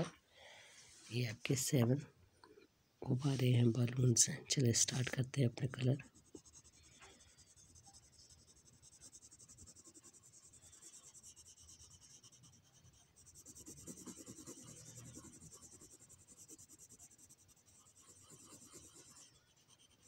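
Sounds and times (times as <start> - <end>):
pencil scratching on paper: 5.1 - 20.0.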